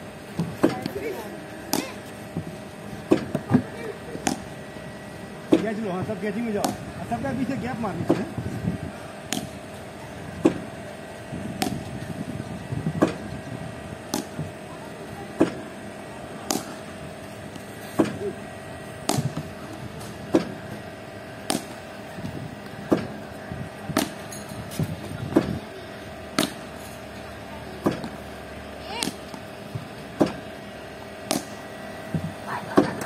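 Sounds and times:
machine motor humming: 0:00.0 - 0:33.0
bat hitting tennis balls: 0:01.6 - 0:02.0, 0:03.0 - 0:03.6, 0:04.2 - 0:04.6, 0:06.6 - 0:06.9, 0:09.3 - 0:09.6, 0:11.6 - 0:11.9, 0:14.0 - 0:14.5, 0:16.4 - 0:16.9, 0:17.5 - 0:18.4, 0:19.0 - 0:20.7, 0:21.4 - 0:21.9, 0:23.9 - 0:25.6, 0:26.3 - 0:26.9, 0:27.8 - 0:28.3, 0:29.0 - 0:30.5, 0:31.2 - 0:31.6.

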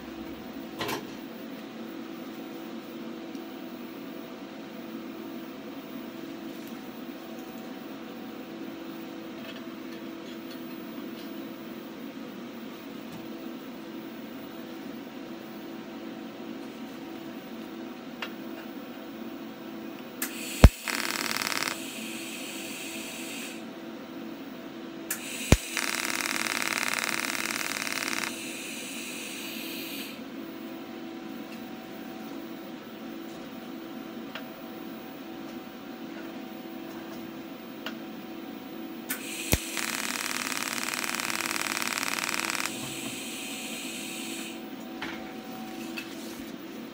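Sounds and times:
welding arc hiss: 0:20.2 - 0:23.6, 0:25.1 - 0:30.2, 0:39.1 - 0:44.6
steady hum: 0:20.3 - 0:23.6, 0:25.1 - 0:30.2, 0:39.1 - 0:44.6
welding arc striking crack: 0:20.6 - 0:21.8, 0:25.1 - 0:28.4, 0:39.1 - 0:42.8.

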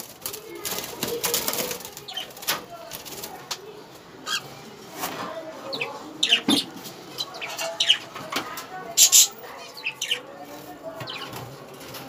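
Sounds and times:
birds fluttering against wire cage: 0:00.0 - 0:04.1, 0:06.5 - 0:12.0.

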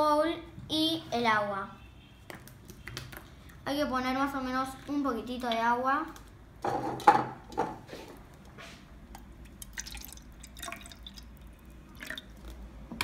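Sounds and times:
water pouring into plastic jug: 0:09.4 - 0:12.7.

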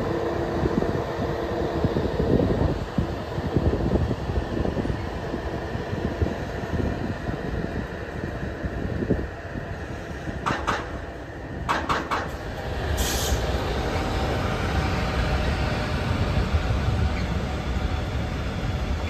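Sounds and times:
train rumbling on rails: 0:00.0 - 0:19.0
sharp rail clacks: 0:10.4 - 0:11.0, 0:11.7 - 0:12.4.

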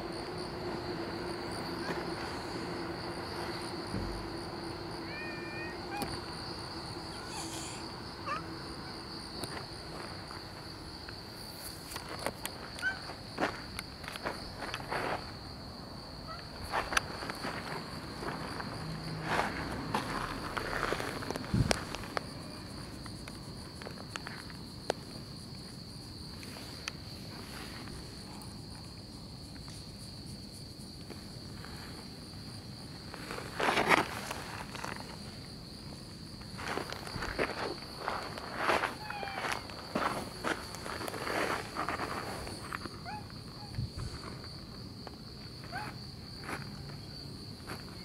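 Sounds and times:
high-pitched insect drone: 0:00.0 - 0:33.6, 0:34.2 - 0:48.0
footsteps on pavement: 0:16.6 - 0:22.3.

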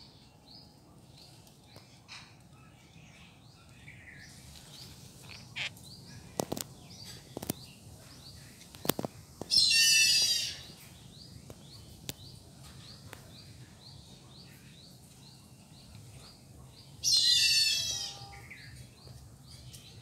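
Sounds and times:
birds chirping: 0:00.0 - 0:20.0
loud warbling bird call: 0:09.5 - 0:10.7.

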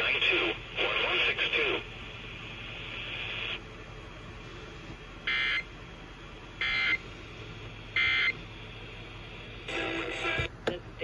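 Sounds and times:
radio hiss: 0:00.0 - 0:03.6, 0:08.0 - 0:11.0.

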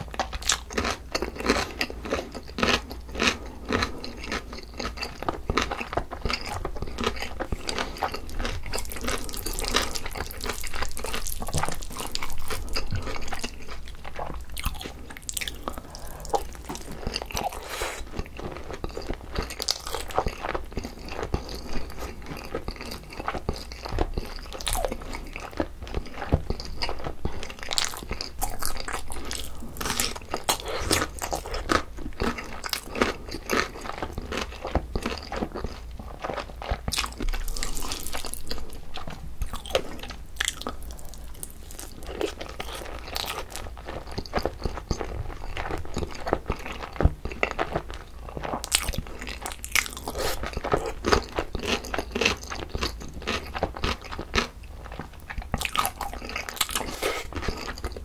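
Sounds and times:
chewing and crunching food: 0:00.0 - 0:58.0.

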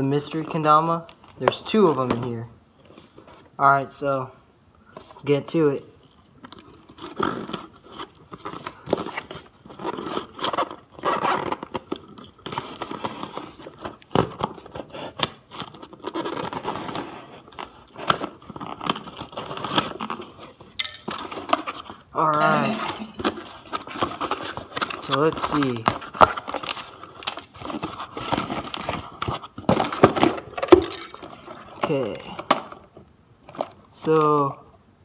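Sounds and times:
tape and cardboard crackling: 0:06.0 - 0:34.4
knife sawing through packing tape: 0:09.1 - 0:11.8.

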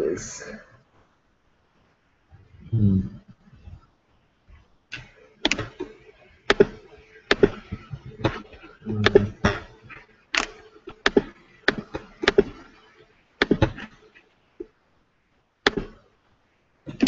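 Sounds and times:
computer clicks and taps: 0:04.9 - 0:12.8, 0:13.4 - 0:14.0, 0:15.6 - 0:16.1.

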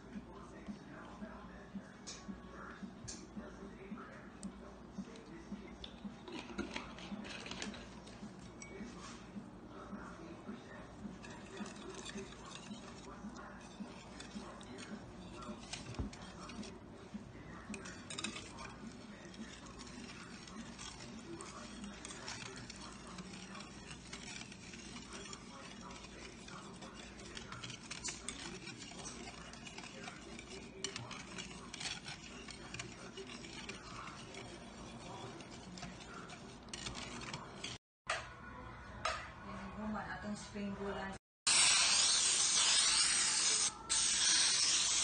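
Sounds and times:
whisk scraping ceramic bowl: 0:03.0 - 0:37.8, 0:41.5 - 0:45.0.

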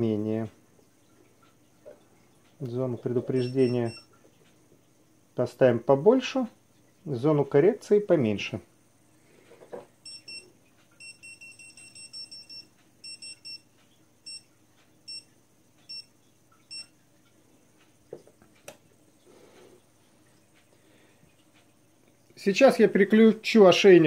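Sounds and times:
high electronic beeps: 0:03.3 - 0:04.0.

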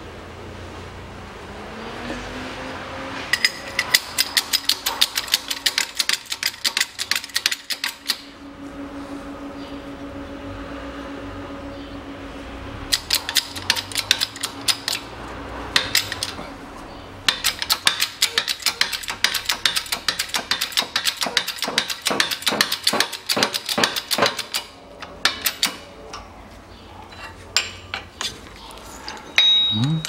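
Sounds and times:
rapid sharp metallic clicks: 0:03.3 - 0:08.2, 0:12.9 - 0:15.1, 0:15.7 - 0:16.4, 0:17.3 - 0:25.8.

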